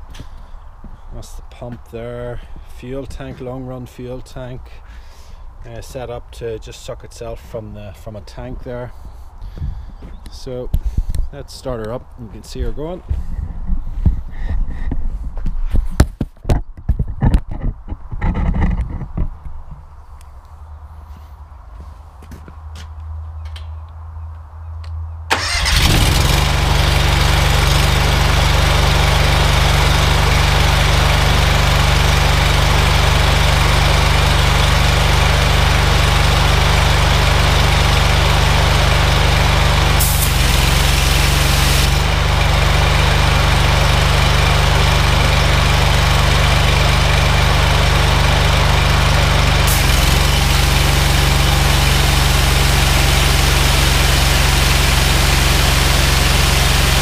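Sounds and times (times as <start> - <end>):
petrol engine running: 25.3 - 57.0
high-pressure water jet hissing: 39.9 - 42.1, 49.6 - 57.0.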